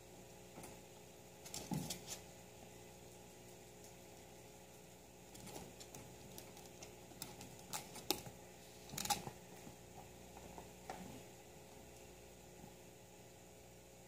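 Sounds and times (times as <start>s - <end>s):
guinea pig clicks and rustles: 2.9s - 10.6s.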